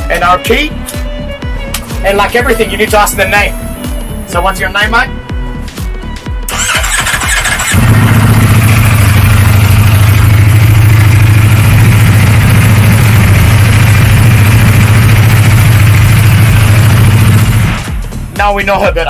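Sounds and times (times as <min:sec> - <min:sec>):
motorcycle engine starter cranking: 0:06.5 - 0:08.0
motorcycle engine idling: 0:06.5 - 0:17.7.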